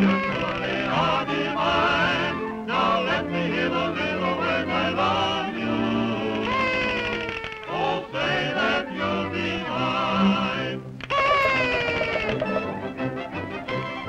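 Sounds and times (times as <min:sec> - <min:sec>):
cartoon characters singing with vibrato: 0:00.1 - 0:12.8
band accompaniment: 0:11.2 - 0:14.0.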